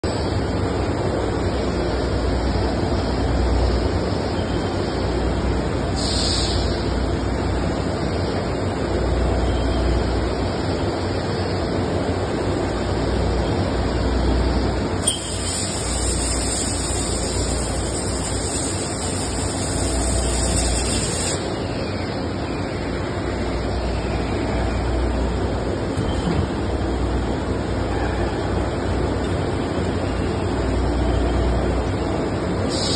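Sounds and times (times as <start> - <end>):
machinery hiss and rumble: 0.0 - 32.9.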